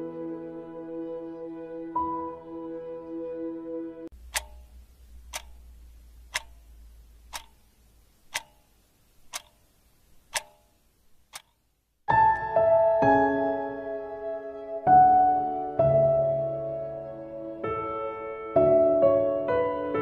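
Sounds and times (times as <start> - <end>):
music: 0.0 - 4.1, 12.1 - 20.0
clock ticking: 4.1 - 11.7.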